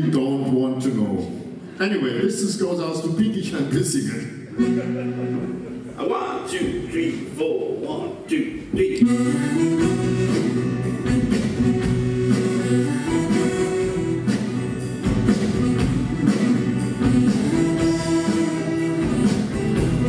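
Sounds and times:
accordion: 4.5 - 5.9, 9.0 - 20.0
electric bass: 9.0 - 20.0.

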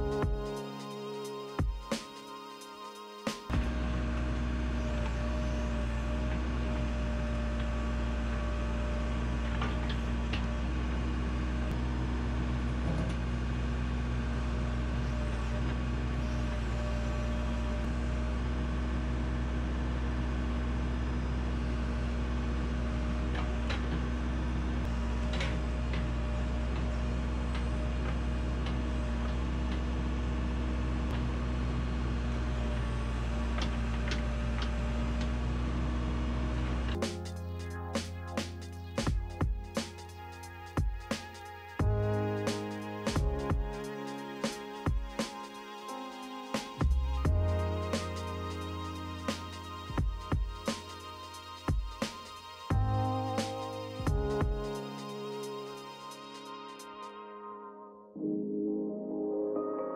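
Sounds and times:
backhoe engine running: 3.5 - 40.0, 41.8 - 44.4, 52.7 - 55.3.

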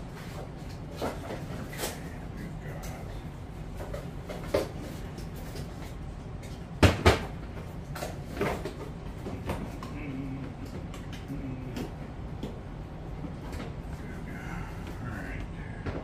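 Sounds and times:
boxes knocking on workbench: 6.8 - 7.3
low hum: 8.8 - 16.0.

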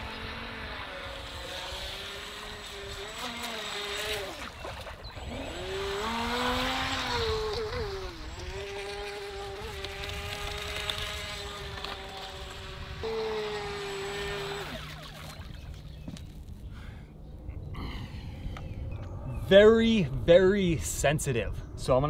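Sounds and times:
electric motor whine: 0.0 - 16.3.

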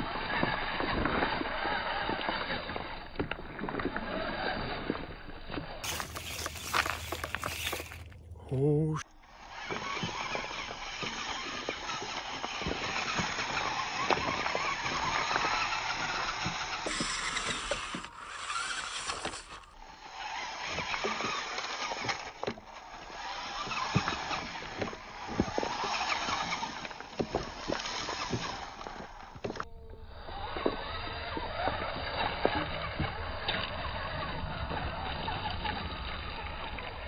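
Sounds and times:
rc car motor and gears whining: 0.0 - 37.0
tyres bumping over cobbles: 5.8 - 8.4, 20.4 - 29.6.

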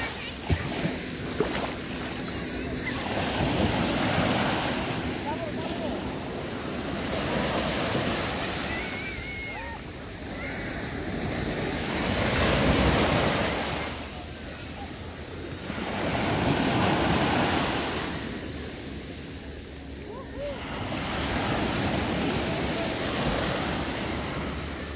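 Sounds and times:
small waves washing over sand: 0.0 - 24.9.

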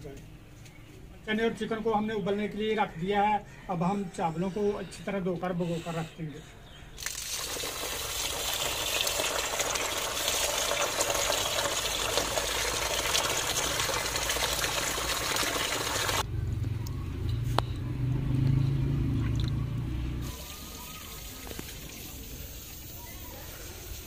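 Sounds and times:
tap water pouring into steel bowl: 7.0 - 16.2, 20.3 - 22.8.

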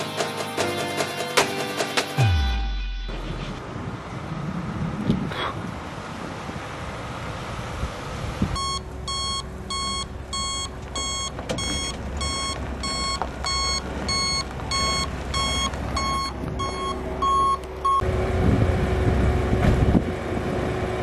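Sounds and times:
truck engine running: 0.1 - 21.0
truck reversing alarm beeping: 8.6 - 18.2.

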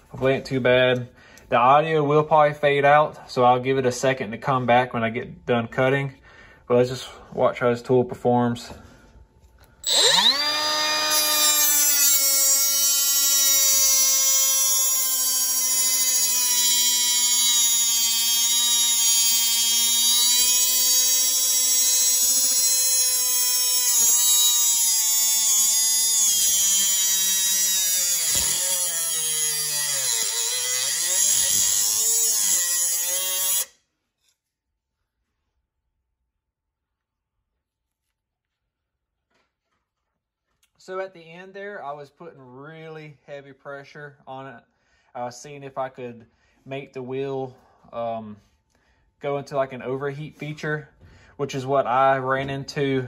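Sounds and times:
cutoff tool cutting steel: 9.8 - 33.8.

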